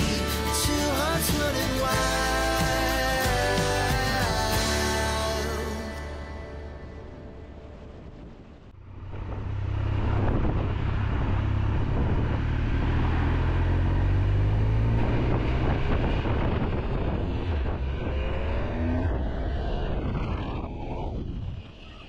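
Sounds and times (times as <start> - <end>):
wind rushing: 5.5 - 22.0
motorcycle engine running: 8.8 - 19.5.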